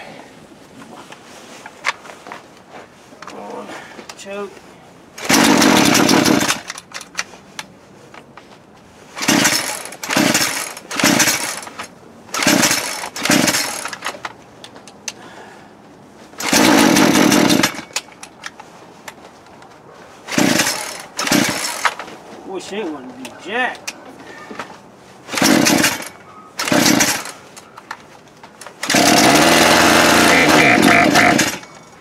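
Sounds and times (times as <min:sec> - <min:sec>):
chainsaw pull starter yanked: 0:05.2 - 0:07.3, 0:09.2 - 0:15.2, 0:16.4 - 0:18.6, 0:20.3 - 0:22.1, 0:25.3 - 0:27.9, 0:28.6 - 0:32.0.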